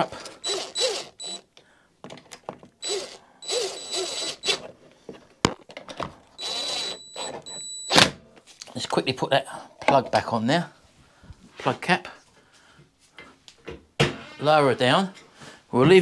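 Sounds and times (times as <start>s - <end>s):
cordless drill whining: 0.0s - 1.5s, 2.8s - 4.7s, 6.3s - 8.0s.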